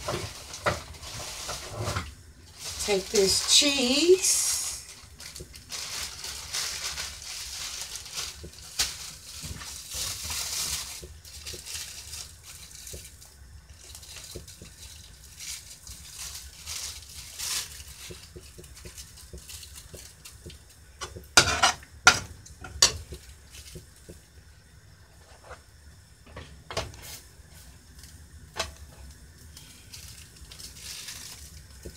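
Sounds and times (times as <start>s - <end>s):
plastic bag crinkling: 0.0s - 20.7s, 29.0s - 31.9s.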